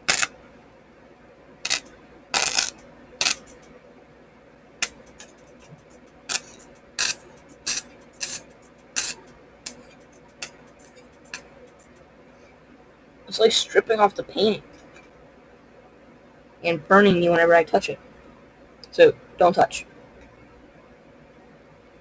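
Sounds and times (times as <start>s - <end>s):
electric sparks cracking: 0.0s - 0.4s, 1.6s - 3.7s, 4.8s - 12.0s.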